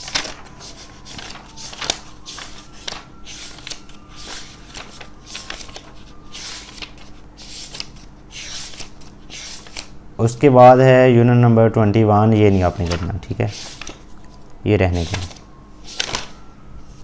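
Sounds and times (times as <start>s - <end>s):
pages being turned: 0.0s - 10.0s, 12.6s - 14.4s, 15.0s - 16.4s.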